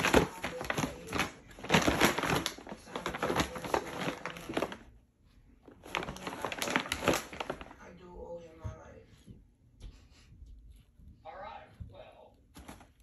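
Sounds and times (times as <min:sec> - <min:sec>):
cat scrabbling in paper bag: 0:00.0 - 0:04.8, 0:05.8 - 0:07.9
paper crinkling and rustling: 0:00.0 - 0:04.9, 0:05.7 - 0:08.0, 0:12.5 - 0:13.0.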